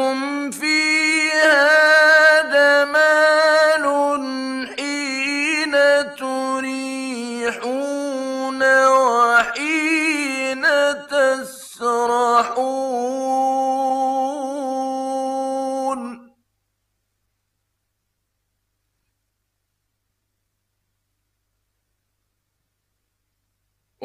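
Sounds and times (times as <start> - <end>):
man chanting recitation: 0.0 - 16.3.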